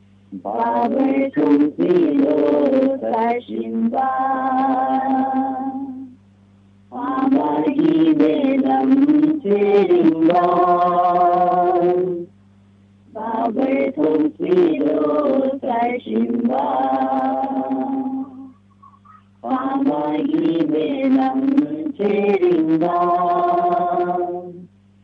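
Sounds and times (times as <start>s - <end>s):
low hum: 0.0s - 25.0s
person chanting: 0.3s - 6.2s, 6.9s - 12.3s, 13.1s - 24.7s.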